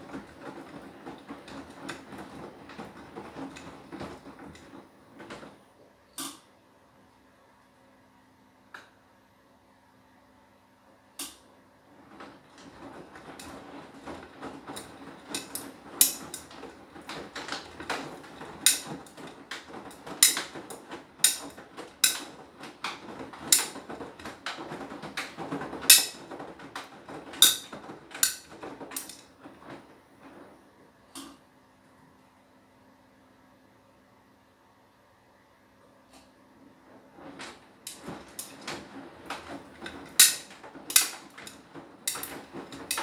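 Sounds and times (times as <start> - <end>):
sharp clacks and knocks: 0.0 - 5.6, 12.0 - 30.6, 36.9 - 43.0
washing machine drum tumbling: 0.0 - 6.4, 11.3 - 31.7, 36.4 - 43.0.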